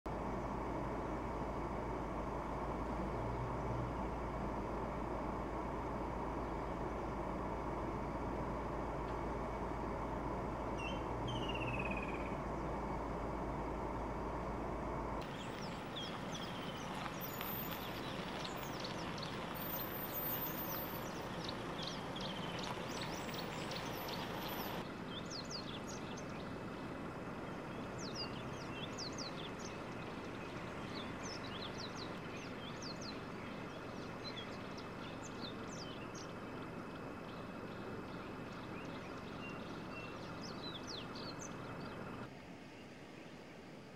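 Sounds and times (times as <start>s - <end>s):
idling vehicle rumble: 0.0s - 43.9s
steady outdoor hiss: 0.1s - 43.9s
high chirping calls: 10.8s - 12.4s, 15.2s - 26.5s.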